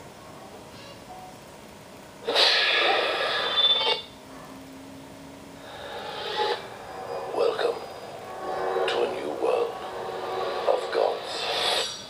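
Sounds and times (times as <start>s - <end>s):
trailer soundtrack from small speaker: 2.2s - 12.0s
sudden rush of noise: 5.6s - 12.0s.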